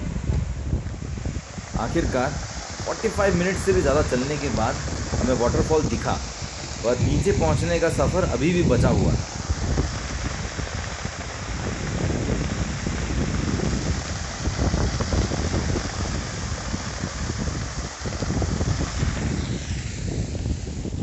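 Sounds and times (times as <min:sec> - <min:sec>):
wind buffeting microphone: 0:00.0 - 0:21.0
waterfall rushing: 0:01.5 - 0:11.8.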